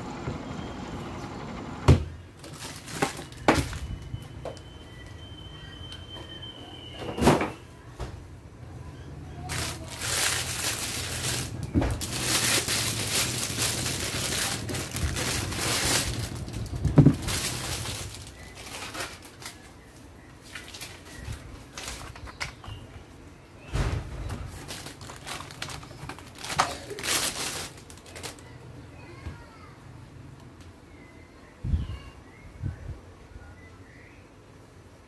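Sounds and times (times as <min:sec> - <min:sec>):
plastic bag crinkling: 0:02.4 - 0:04.2, 0:09.5 - 0:22.3, 0:24.5 - 0:28.5.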